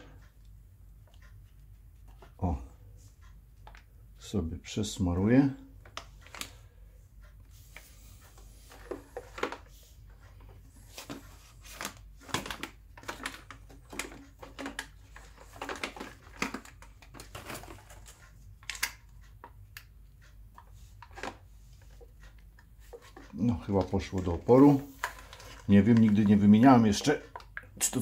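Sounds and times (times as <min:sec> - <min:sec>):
plastic scraping: 0:07.7 - 0:19.0, 0:22.8 - 0:27.7.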